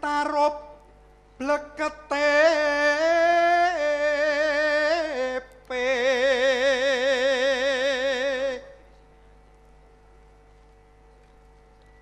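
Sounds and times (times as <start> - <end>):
faint steady hum: 0.0 - 12.0
person chanting with vibrato: 1.4 - 8.8.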